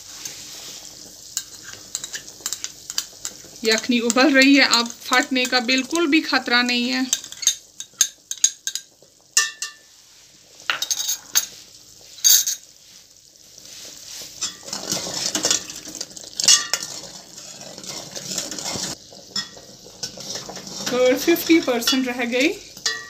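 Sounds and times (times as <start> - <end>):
ladle scraping a pan: 0.0 - 5.7, 13.6 - 23.0
spoon clinking on glass and metal: 9.4 - 9.8, 10.7 - 11.5, 12.2 - 12.6.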